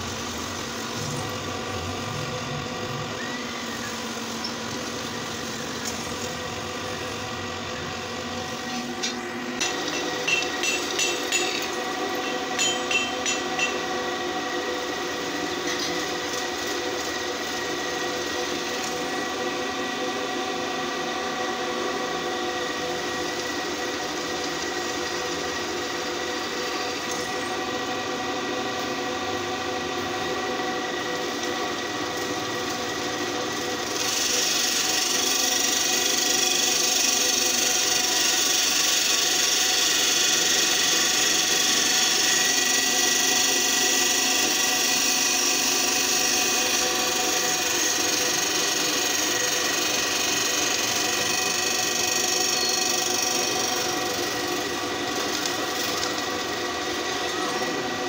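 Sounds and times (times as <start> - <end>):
drill press motor humming: 0.0 - 58.0
drill bit grinding into metal: 8.7 - 13.9, 33.5 - 56.6.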